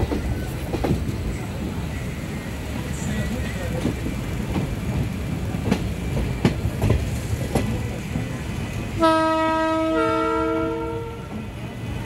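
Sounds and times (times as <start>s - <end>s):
train rumbling on rails: 0.0s - 12.0s
two-tone train horn: 9.0s - 11.4s.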